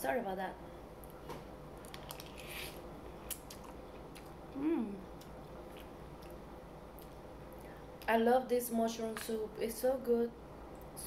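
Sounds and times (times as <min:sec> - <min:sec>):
quiet chewing: 0:01.8 - 0:04.4, 0:05.2 - 0:07.8
person humming: 0:04.6 - 0:05.1.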